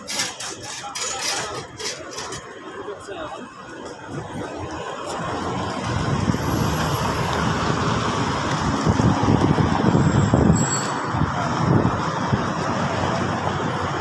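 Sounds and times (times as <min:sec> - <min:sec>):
cars driving past: 0:03.5 - 0:14.0.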